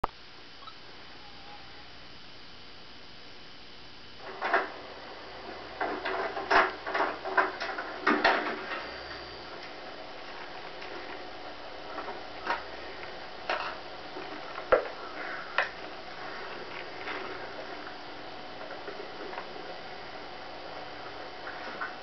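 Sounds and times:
steady low hum: 0.0s - 22.0s
irregular knocks and clattering thuds: 5.5s - 8.9s.

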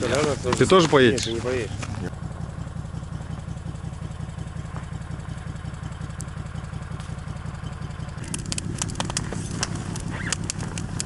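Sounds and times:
vehicle engine idling: 0.0s - 11.0s
sharp clicks and crunches: 8.2s - 11.0s.

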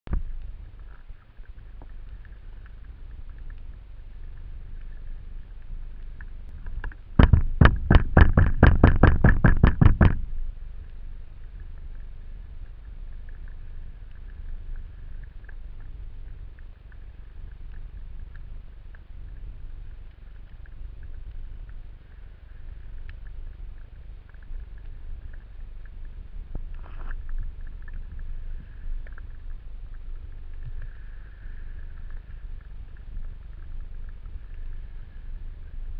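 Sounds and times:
faint hiss: 0.1s - 8.3s, 10.0s - 35.9s
underwater rumble: 0.1s - 35.9s
rapid clicks: 6.8s - 10.3s.

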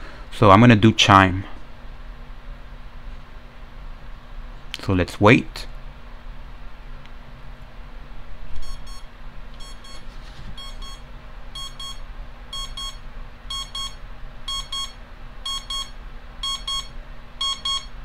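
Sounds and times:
alarm clock beeping: 8.6s - 9.0s, 9.6s - 10.0s, 10.6s - 11.0s, 11.6s - 18.0s.

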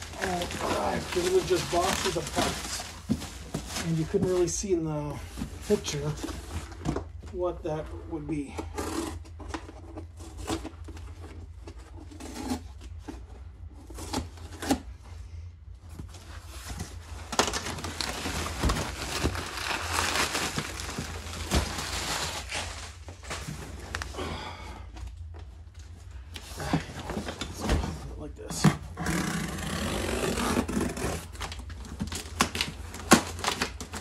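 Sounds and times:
plastic wrap crinkling: 0.0s - 4.6s, 17.2s - 24.1s.

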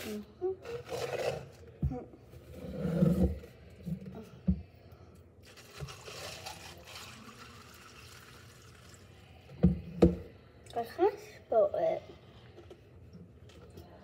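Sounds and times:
liquid pouring over ice: 5.4s - 9.2s.

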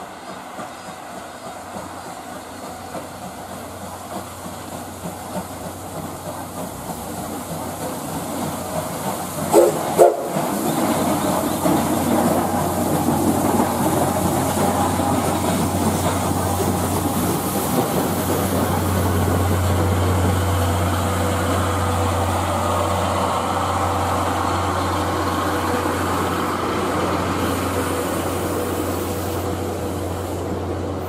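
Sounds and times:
train approaching: 0.0s - 31.0s
train whistle toots: 9.5s - 10.4s.

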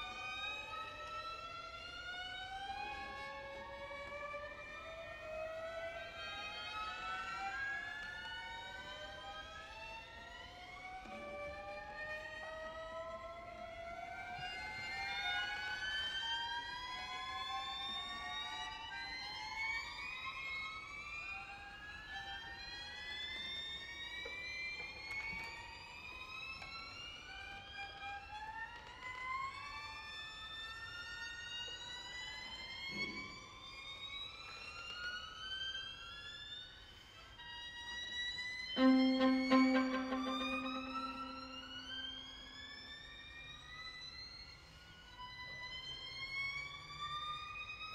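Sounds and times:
string quartet glissandi: 38.8s - 42.3s.

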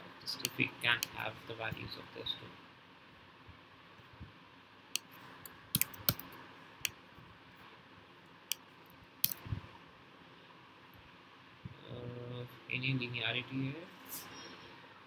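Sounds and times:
faint room hiss: 0.0s - 15.0s
keyboard and trackpad clicks: 5.7s - 6.3s.

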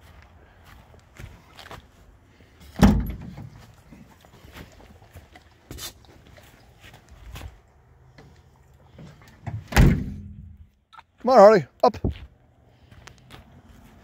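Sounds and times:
van door thump: 2.8s - 3.5s, 9.5s - 10.5s.

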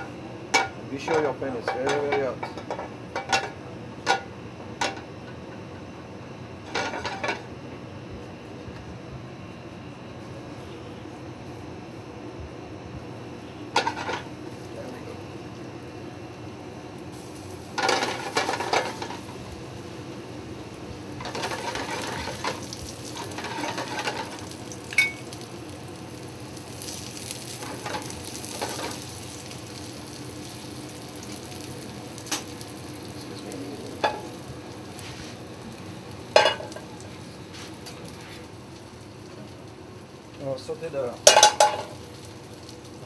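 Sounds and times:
fish sizzling in frying pan: 17.0s - 43.0s.

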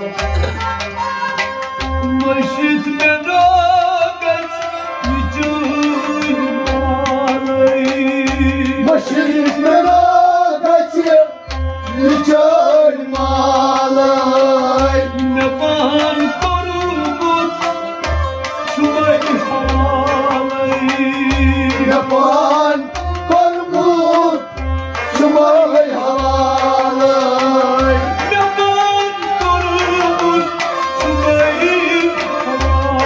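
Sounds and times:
plucked rubab: 0.0s - 10.2s
hand drum beating: 0.0s - 10.5s, 13.1s - 33.0s
harmonium chords: 0.0s - 33.0s
person singing: 18.7s - 33.0s.

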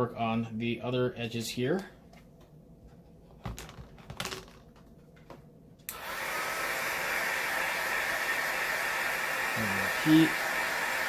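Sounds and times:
heat gun blowing hiss: 5.9s - 11.0s.

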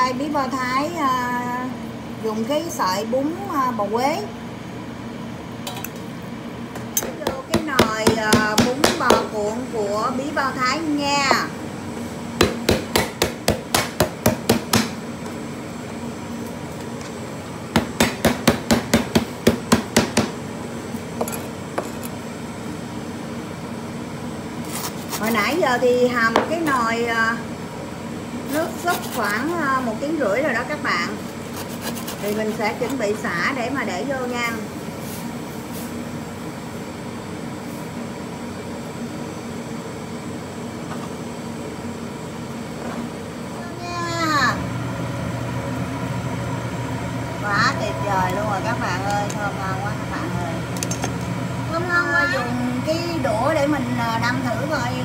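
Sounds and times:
mechanical hum: 0.0s - 55.0s
cleaver chopping on plastic board: 12.4s - 15.0s, 17.8s - 20.4s.

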